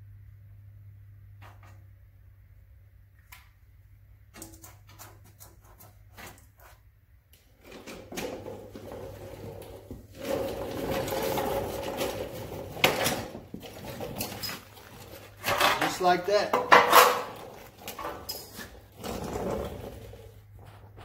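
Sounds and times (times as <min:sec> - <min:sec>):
footsteps: 0:19.5 - 0:21.0.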